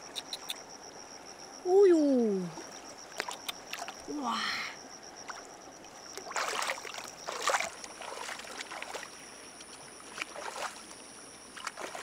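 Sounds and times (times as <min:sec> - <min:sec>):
water splashing and sloshing: 0:02.4 - 0:12.0.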